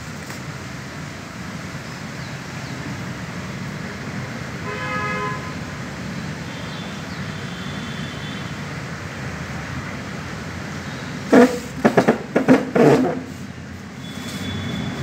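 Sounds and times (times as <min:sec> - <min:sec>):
vehicle horn toot: 0:04.6 - 0:05.6, 0:06.5 - 0:08.5, 0:14.0 - 0:15.0.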